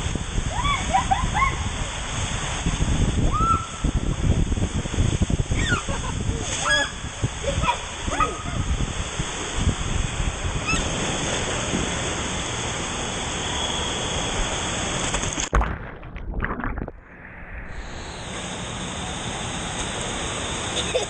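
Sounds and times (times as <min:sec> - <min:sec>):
steady rushing noise: 0:16.4 - 0:21.0.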